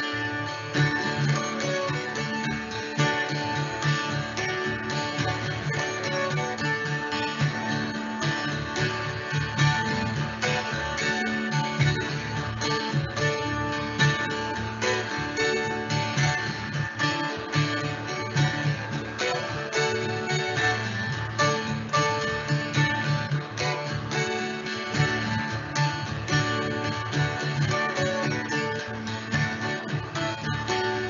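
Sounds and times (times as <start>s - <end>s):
plucked acoustic guitar: 0.0s - 31.0s
rhythmic bass line: 0.0s - 31.0s.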